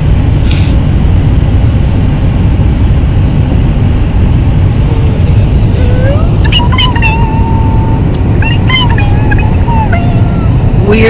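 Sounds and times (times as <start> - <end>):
car driving on snowy road: 0.0 - 11.0
short hiss: 0.4 - 0.8.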